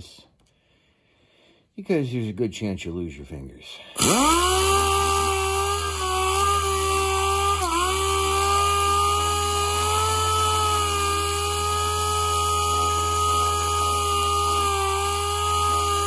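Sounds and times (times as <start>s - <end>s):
air sander whining: 4.0s - 16.0s.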